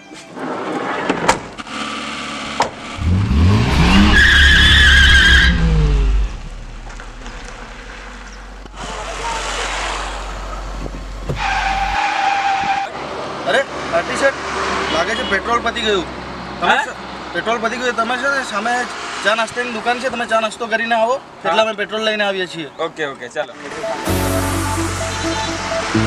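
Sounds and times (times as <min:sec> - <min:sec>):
van engine revving: 0:01.4 - 0:12.0
tyre squeal: 0:03.5 - 0:07.4, 0:11.3 - 0:13.0.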